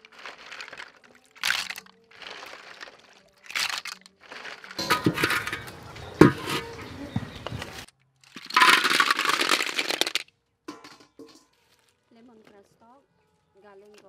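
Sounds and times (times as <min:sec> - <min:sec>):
shell cracking: 0:00.0 - 0:05.4, 0:07.9 - 0:10.2
shells poured into a metal wok: 0:00.0 - 0:05.7, 0:08.2 - 0:11.8
shells clattering in metal strainer: 0:00.0 - 0:06.7, 0:08.3 - 0:11.5.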